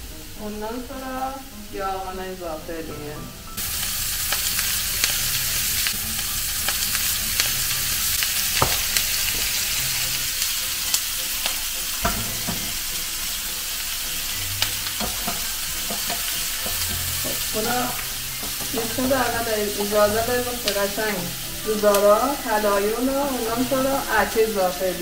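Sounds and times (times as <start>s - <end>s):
onions sizzling in a pan: 0.0s - 25.0s
sharp oil pops: 8.6s - 9.5s.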